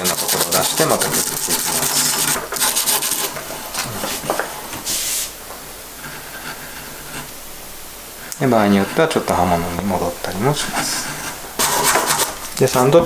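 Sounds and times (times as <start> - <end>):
sandpaper rubbing on wood: 0.0 - 5.4, 8.4 - 13.0.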